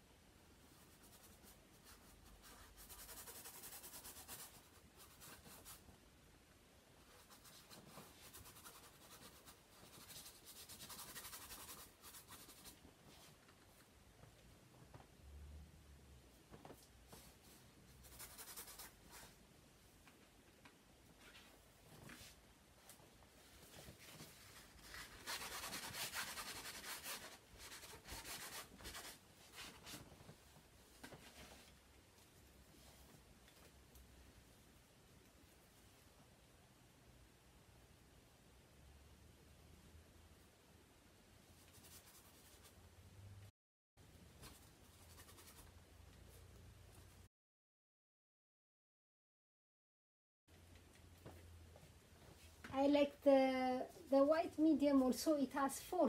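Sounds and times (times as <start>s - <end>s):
paintbrush scratching on canvas: 0.7s - 5.8s, 7.0s - 13.4s, 17.2s - 19.4s, 23.6s - 30.0s, 41.6s - 42.8s, 44.5s - 45.7s.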